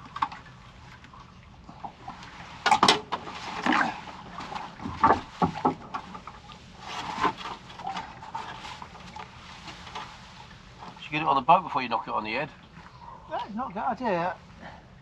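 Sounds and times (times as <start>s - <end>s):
knocks on a boat: 4.8s - 6.0s.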